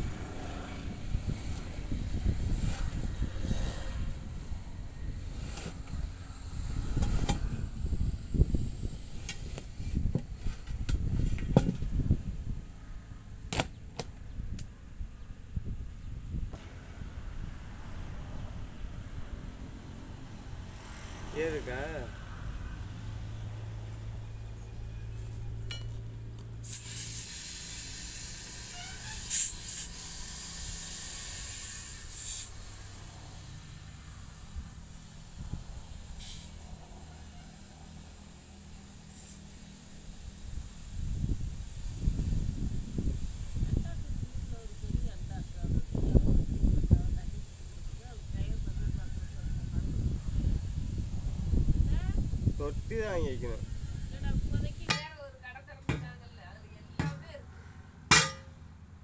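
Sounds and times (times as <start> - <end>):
air flowing into tyre: 0.0 - 12.6, 25.7 - 55.1
compressed air hiss bursts: 0.9 - 10.8, 26.4 - 55.0.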